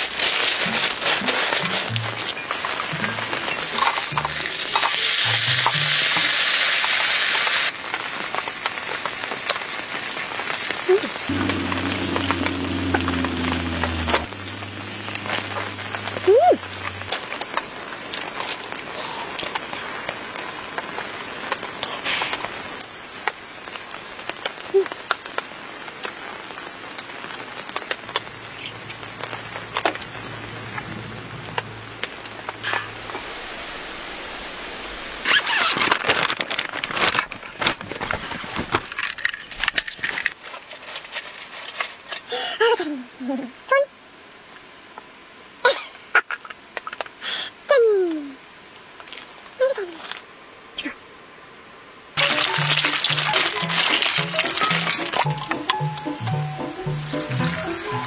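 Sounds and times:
rain pattering on a tent: 0:00.0 - 0:50.7, 0:52.1 - 0:58.0
pancake sizzling in oil: 0:52.2 - 0:55.2
soft background music: 0:52.2 - 0:58.0.

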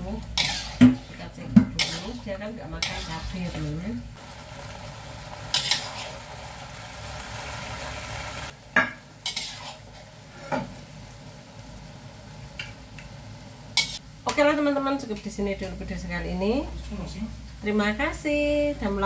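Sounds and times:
spatula scraping a wok: 0:00.0 - 0:03.9, 0:05.5 - 0:06.5, 0:09.2 - 0:10.8, 0:13.8 - 0:14.0
food sizzling: 0:00.0 - 0:19.0.

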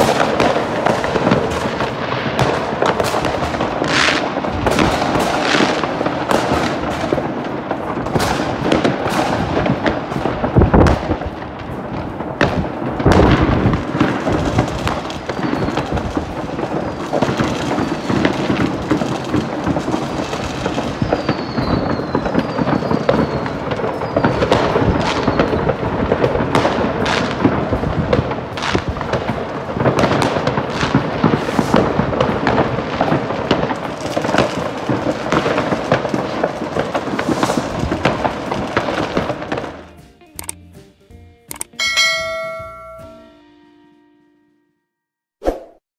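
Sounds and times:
heavy firework booms: 0:00.0 - 0:39.8
firecrackers crackling: 0:00.0 - 0:40.8
falling firework whistles: 0:14.6 - 0:19.6, 0:20.2 - 0:25.9, 0:33.0 - 0:39.4.

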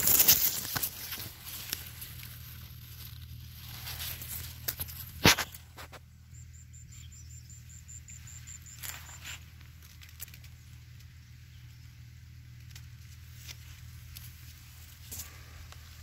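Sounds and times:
leaves rustling: 0:00.0 - 0:06.0, 0:08.5 - 0:11.1, 0:12.5 - 0:16.0
low steady hum: 0:00.0 - 0:16.0.

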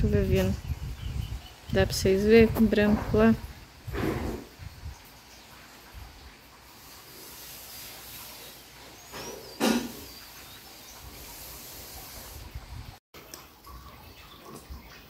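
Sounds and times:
steady rushing hiss: 0:03.4 - 0:13.0.

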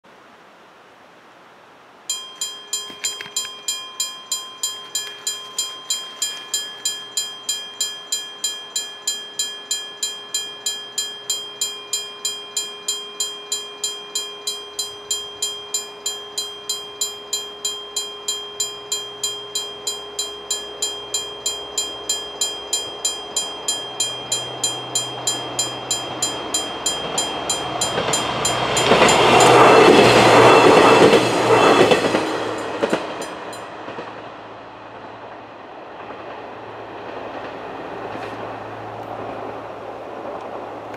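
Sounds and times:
level crossing warning bell: 0:02.1 - 0:34.1
train rumble: 0:02.3 - 0:40.9
train wheels clattering over rails: 0:23.3 - 0:34.3.

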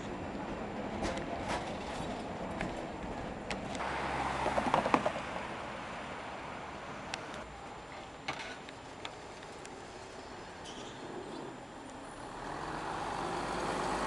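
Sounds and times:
traffic rumble: 0:00.0 - 0:14.0
vehicle passing close: 0:03.8 - 0:07.4, 0:11.2 - 0:14.0.

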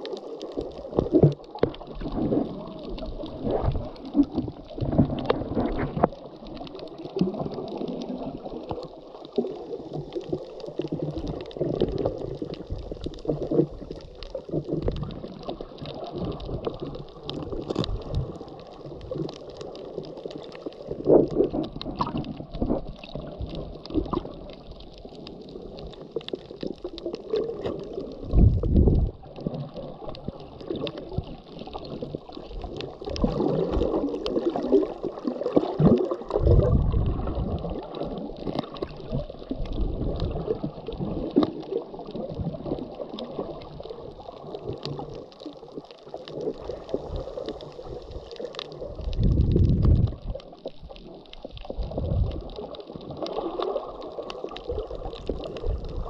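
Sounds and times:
muffled water sloshing and gurgling: 0:00.0 - 0:56.0
small clicks: 0:08.7 - 0:28.1.

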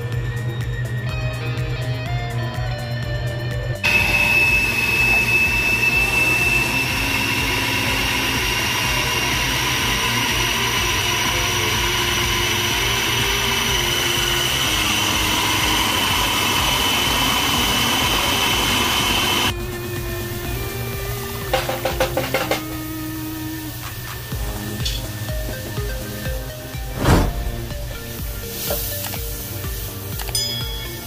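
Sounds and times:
food processor whining: 0:03.8 - 0:26.8.

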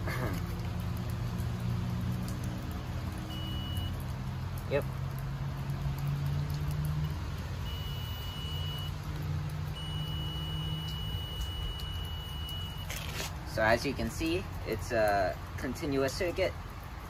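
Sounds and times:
multimeter continuity beep: 0:03.3 - 0:03.9, 0:07.6 - 0:09.0, 0:09.8 - 0:12.9.

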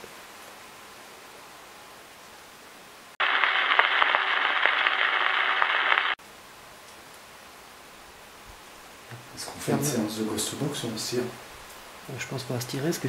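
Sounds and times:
loud static hiss: 0:00.0 - 0:13.0
crackling clicks: 0:03.2 - 0:06.2
low background hiss: 0:06.2 - 0:13.0.

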